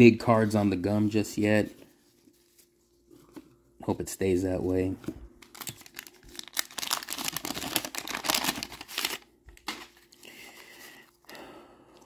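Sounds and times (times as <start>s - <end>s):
wax paper wrapper crinkling: 5.4s - 11.0s.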